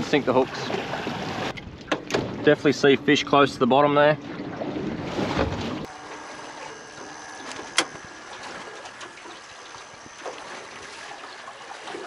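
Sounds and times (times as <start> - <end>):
thin high steady tone: 5.9 - 11.6.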